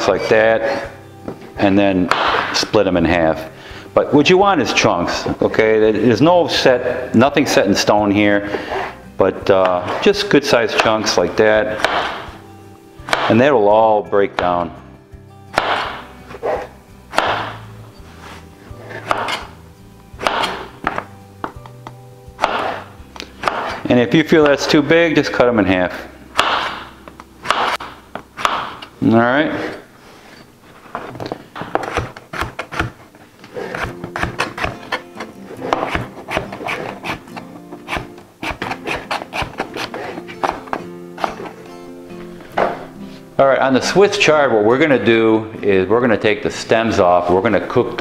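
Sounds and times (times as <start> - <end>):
background music: 0.0 - 48.0
knife chopping on plastic board: 2.0 - 2.6, 11.7 - 12.3, 13.1 - 13.4, 15.5 - 17.6, 19.0 - 19.5, 20.2 - 24.6, 26.4 - 28.9, 31.6 - 41.6.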